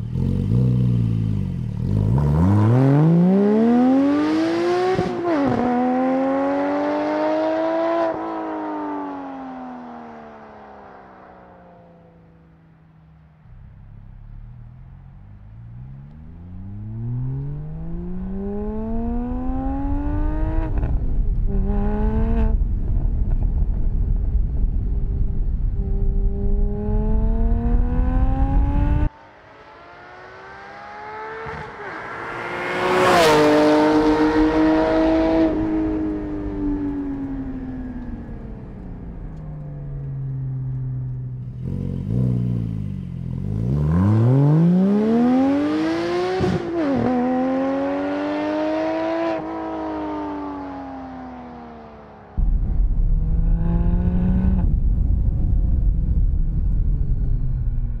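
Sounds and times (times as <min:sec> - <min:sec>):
sports car engine revving: 0:00.0 - 0:09.4, 0:29.8 - 0:54.8.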